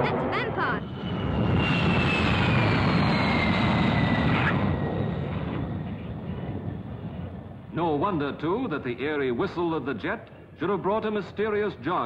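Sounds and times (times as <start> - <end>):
jet engine whistle: 0.0 - 5.8.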